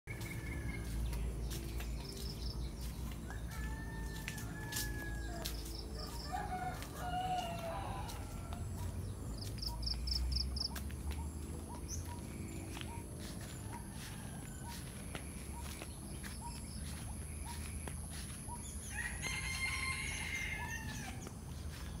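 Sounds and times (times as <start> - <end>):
rooster crowing: 3.3 - 8.9, 13.6 - 14.9, 18.8 - 21.3.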